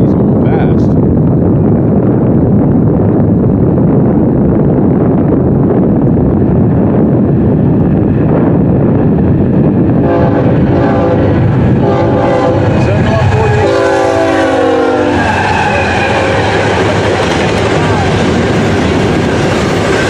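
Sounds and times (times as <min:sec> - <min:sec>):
low rumble: 0:00.0 - 0:20.0
locomotive air horn blasts: 0:10.0 - 0:12.7, 0:13.6 - 0:16.5.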